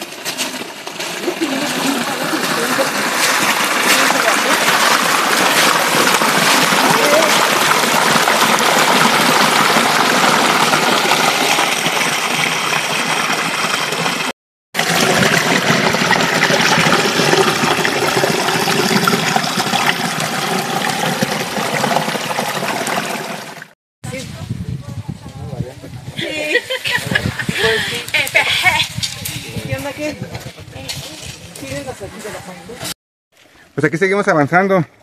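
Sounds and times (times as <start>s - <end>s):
creek water splashing over rocks: 0.0s - 23.8s.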